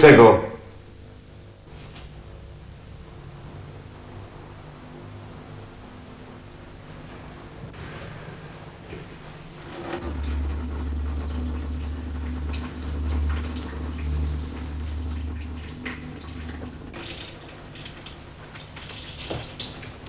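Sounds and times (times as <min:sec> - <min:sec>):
low steady hum: 0:00.0 - 0:20.0
liquid pouring into a sink: 0:09.4 - 0:20.0.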